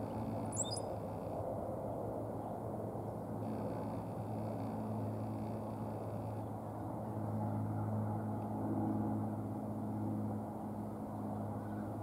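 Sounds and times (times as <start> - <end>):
low engine-like hum: 0.0 - 12.0.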